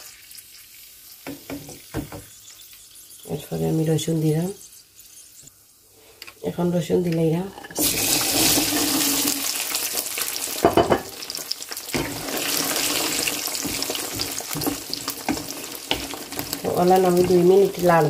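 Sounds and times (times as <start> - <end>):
oil sizzling in a frying pan: 0.0 - 5.8, 7.8 - 18.0
wooden spatula stirring: 11.9 - 18.0.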